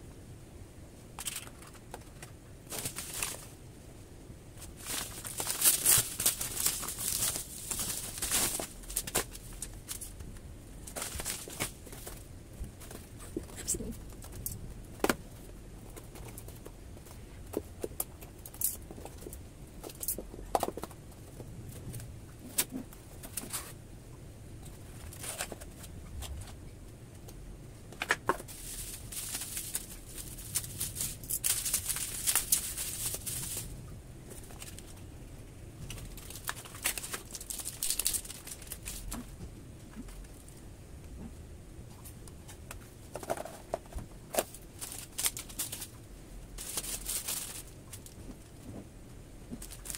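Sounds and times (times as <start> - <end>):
bubble wrap bag crinkling: 1.2 - 3.6, 4.6 - 21.0, 28.3 - 35.0, 35.8 - 39.3, 43.1 - 48.4, 49.5 - 49.9.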